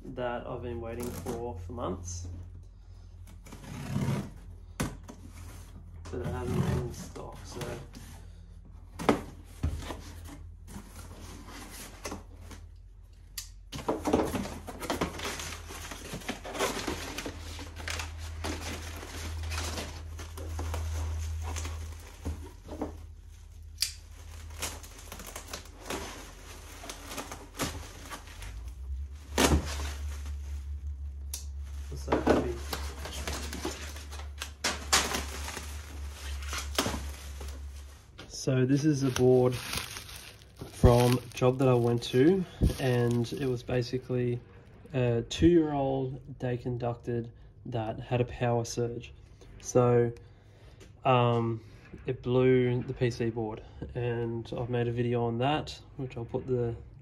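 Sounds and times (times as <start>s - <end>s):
packing paper crumpling: 14.6s - 43.8s
bubble wrap crinkling: 14.6s - 43.9s.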